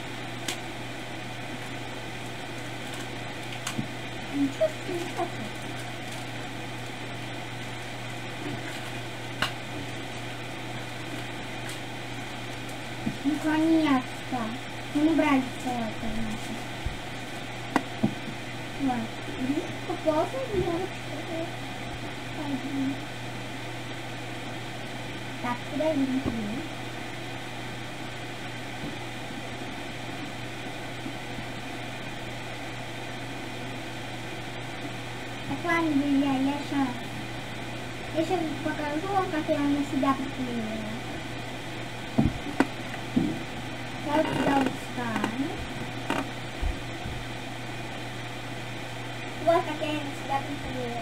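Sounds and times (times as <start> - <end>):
low constant hum: 0.0 - 51.0.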